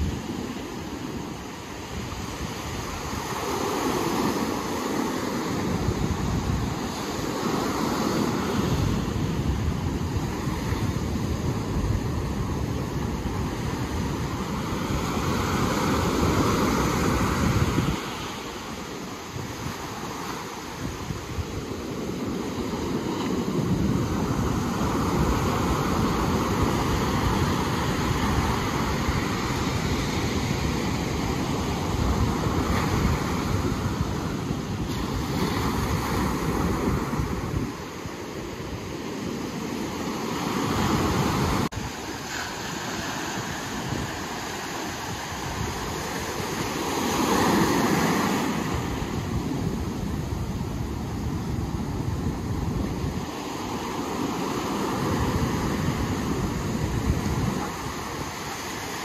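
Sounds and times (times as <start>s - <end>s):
ocean surf washing: 0.0s - 59.0s
wind on microphone: 0.0s - 59.0s.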